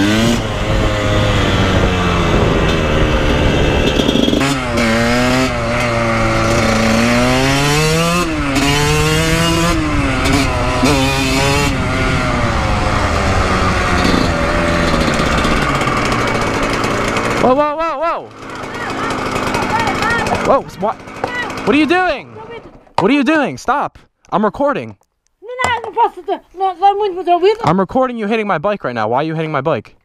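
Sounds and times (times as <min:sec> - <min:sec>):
dirt bike engine revving: 0:00.0 - 0:23.5.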